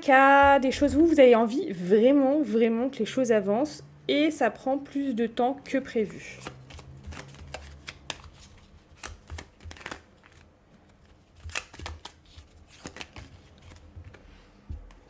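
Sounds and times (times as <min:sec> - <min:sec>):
cards being shuffled: 0:06.3 - 0:15.0.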